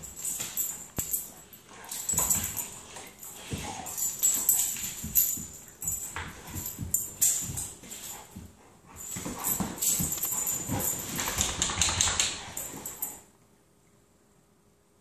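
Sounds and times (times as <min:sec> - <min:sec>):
scuffling and paw knocks: 0:00.0 - 0:13.1.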